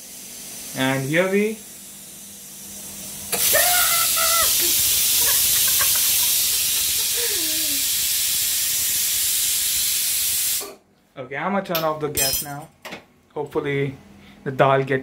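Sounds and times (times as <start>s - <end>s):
pressure cooker steam hiss: 0.0s - 10.8s.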